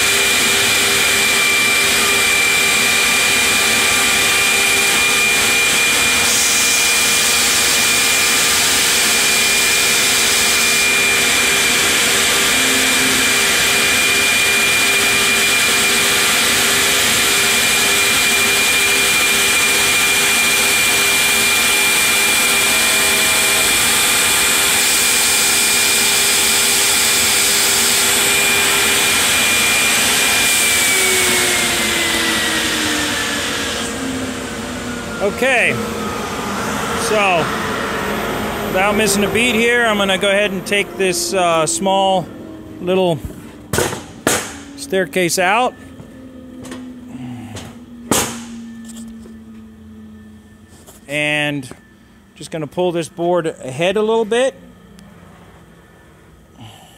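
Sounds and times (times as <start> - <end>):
router spindle whining: 0.0 - 56.8
loud rushing noise: 27.0 - 45.8.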